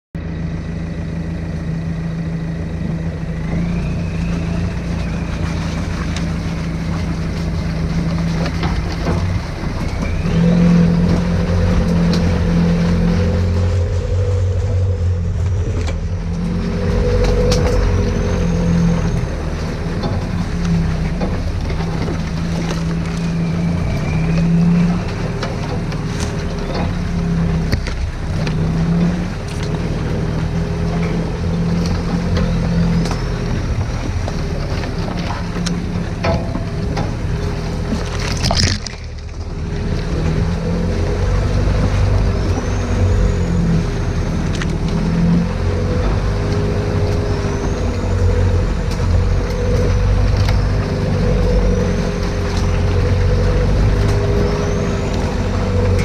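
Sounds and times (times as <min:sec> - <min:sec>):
diesel engine pulling at low speed: 0:00.0 - 0:56.0
vehicle knocking over ruts: 0:00.5 - 0:56.0
high whistle gliding up and down: 0:03.0 - 0:07.2, 0:09.7 - 0:20.0, 0:22.9 - 0:25.6.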